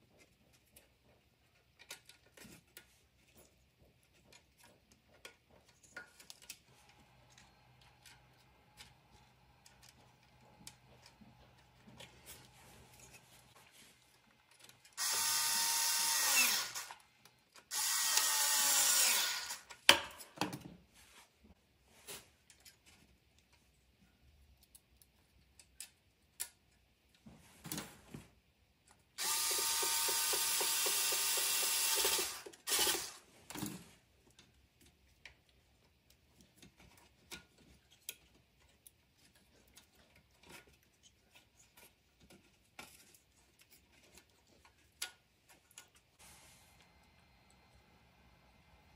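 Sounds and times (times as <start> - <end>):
power drill whirring: 15.0 - 17.0, 17.7 - 19.7, 29.2 - 33.3.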